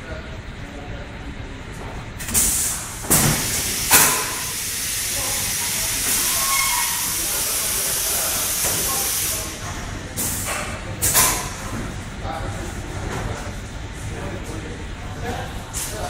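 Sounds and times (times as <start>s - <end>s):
steady hiss of air: 2.2s - 11.5s
sharp bursts of venting air: 2.2s - 11.6s.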